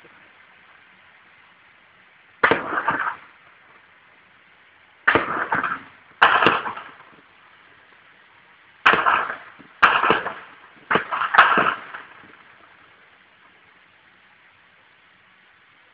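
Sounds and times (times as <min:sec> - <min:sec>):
gunshots with echo: 0:02.4 - 0:03.2, 0:05.1 - 0:06.9, 0:08.8 - 0:12.0.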